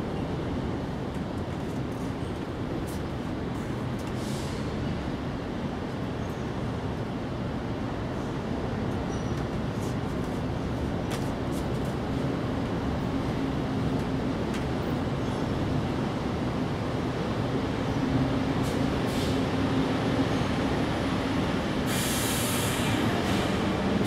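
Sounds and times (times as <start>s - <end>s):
brief hiss: 21.9s - 23.6s.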